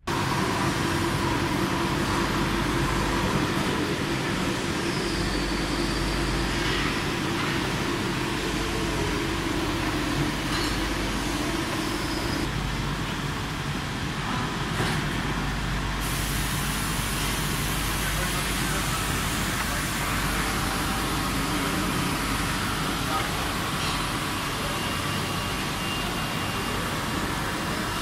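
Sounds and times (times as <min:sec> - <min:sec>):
lathe machine hum: 0:00.0 - 0:12.7, 0:16.6 - 0:28.0
coolant spray hissing: 0:16.0 - 0:28.0.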